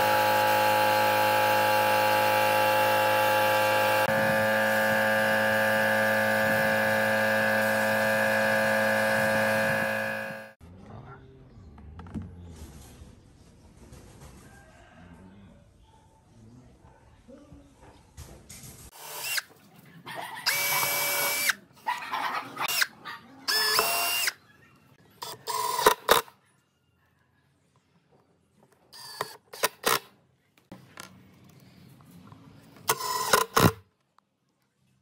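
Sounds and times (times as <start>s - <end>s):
power driver driving screws: 23.5s - 24.4s, 29.0s - 30.1s, 32.9s - 33.8s.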